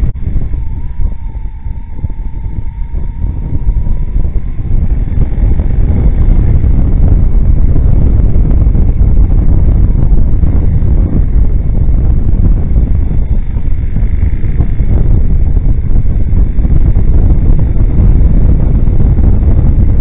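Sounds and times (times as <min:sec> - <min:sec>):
motorcycle ride rush: 0:00.0 - 0:20.0
wind buffeting microphone: 0:00.0 - 0:20.0.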